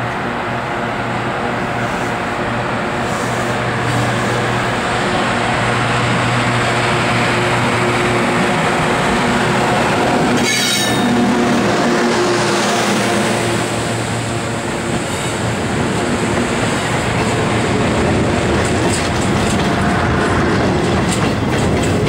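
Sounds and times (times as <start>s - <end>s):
electric locomotive hum: 0.0s - 22.0s
wheels rumbling on rail: 0.0s - 22.0s
high-pitched squeal: 9.5s - 13.9s.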